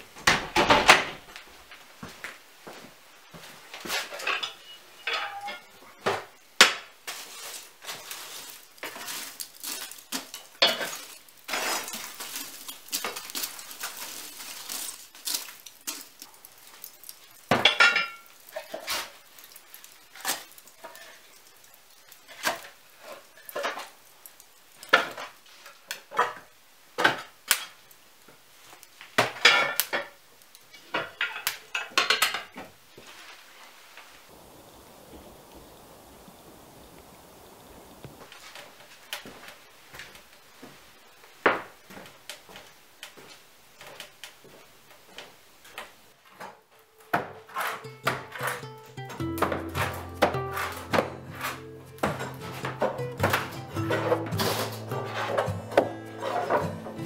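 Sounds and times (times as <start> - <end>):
firewood clunking: 0.0 - 33.2, 41.4 - 57.0
wood clinking against iron: 3.8 - 6.9, 14.8 - 25.3, 29.2 - 32.6.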